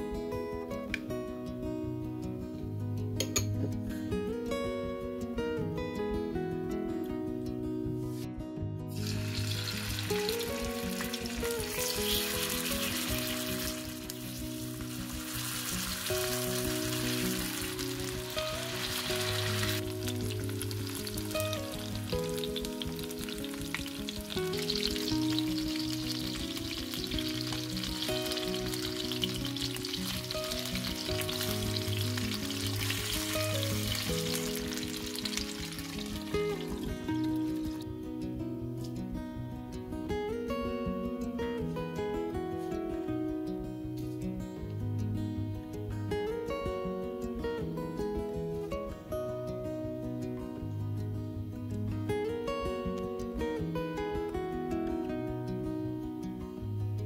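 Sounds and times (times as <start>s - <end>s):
acoustic guitar music: 0.0s - 57.0s
chicken wings sizzling in oil: 8.9s - 37.0s.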